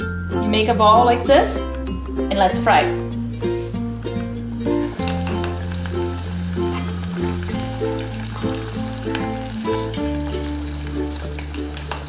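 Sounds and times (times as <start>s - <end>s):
background music with bass line: 0.0s - 12.0s
oil sizzling and bubbling: 3.1s - 12.0s.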